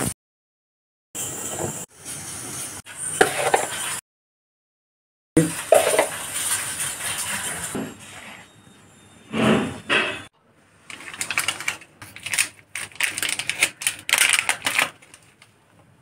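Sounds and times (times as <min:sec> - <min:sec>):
spoon scraping flour in metal plate: 0:03.1 - 0:04.0, 0:05.6 - 0:08.4
foil sachet crackling: 0:10.9 - 0:15.5.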